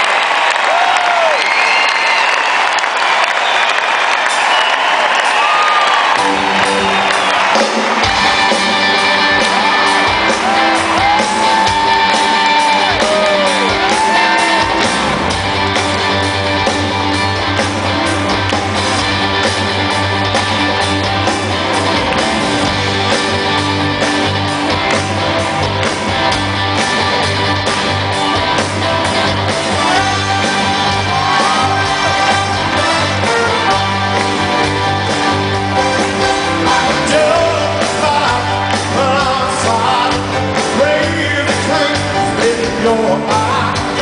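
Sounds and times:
crowd shouting: 0.0s - 15.3s
live rock band playing: 4.0s - 44.0s
electric guitar: 6.1s - 44.0s.

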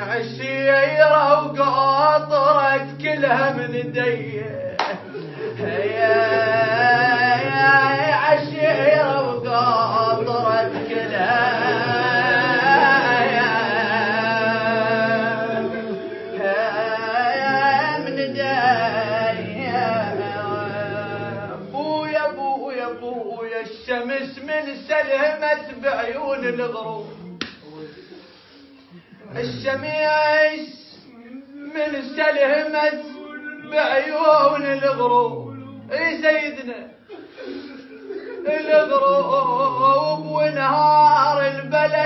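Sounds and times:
man singing a lament: 0.0s - 27.4s, 29.2s - 42.0s.

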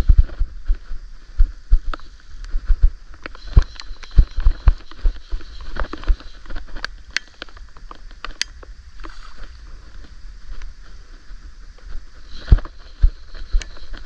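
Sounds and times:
sharp clicks: 5.6s - 9.1s.

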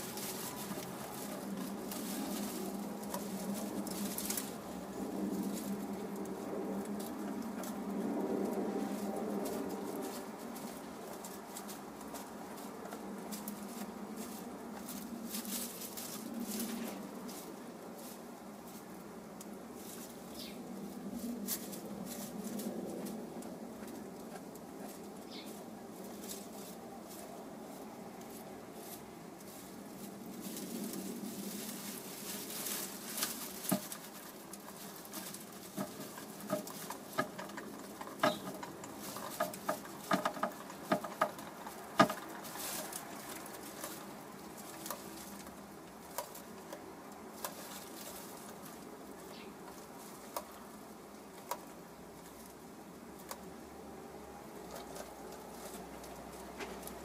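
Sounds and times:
straw rustling: 0.0s - 57.0s.

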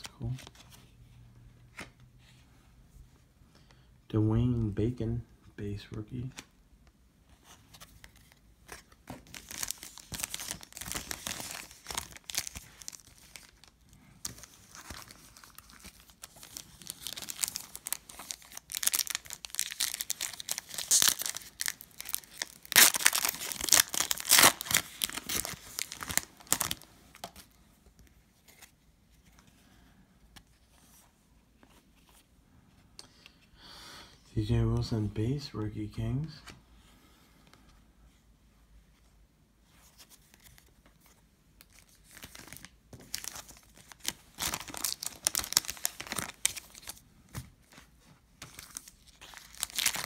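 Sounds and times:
foil pack tearing and crinkling: 16.4s - 26.8s, 43.1s - 46.9s, 49.3s - 50.0s.

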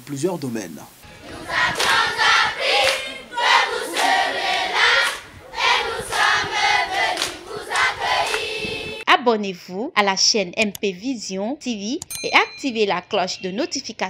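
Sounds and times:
children singing and chanting: 1.0s - 9.0s
hands clapping: 1.7s - 8.7s.

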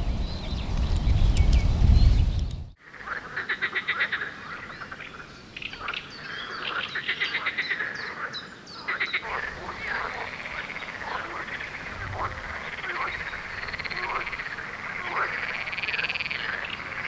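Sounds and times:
frogs croaking: 2.8s - 17.0s.

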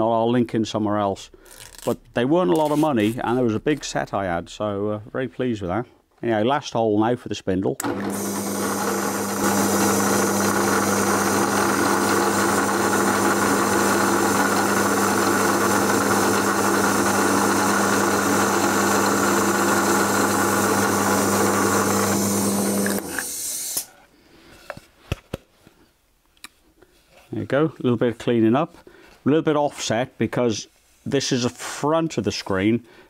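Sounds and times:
power drill boring wood: 7.8s - 23.9s.

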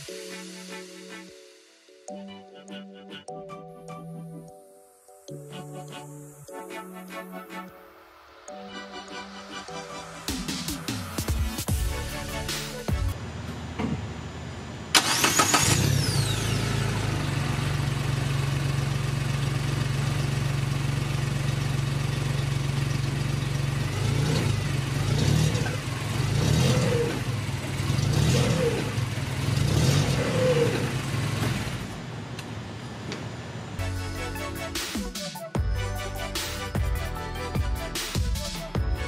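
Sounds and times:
utv engine starting and idling: 13.2s - 32.0s
engine revving: 14.9s - 32.0s.

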